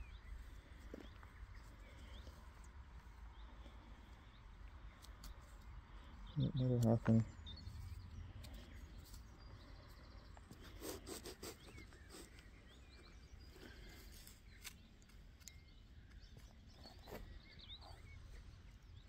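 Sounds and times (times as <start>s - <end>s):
small birds chirping: 0.0s - 19.0s
soil rustling and scraping: 13.5s - 18.2s.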